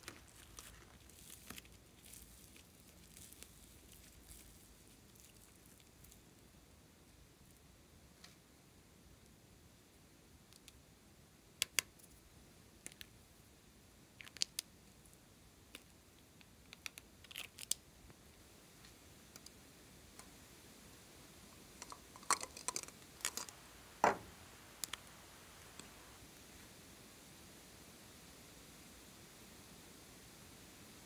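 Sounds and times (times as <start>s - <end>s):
plastic toy containers clicking: 21.8s - 23.5s
knock: 24.0s - 24.3s.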